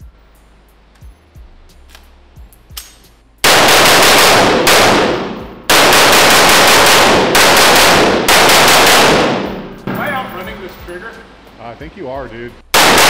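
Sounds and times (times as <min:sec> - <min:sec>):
rifle shots: 0:03.4 - 0:10.2, 0:12.7 - 0:13.0.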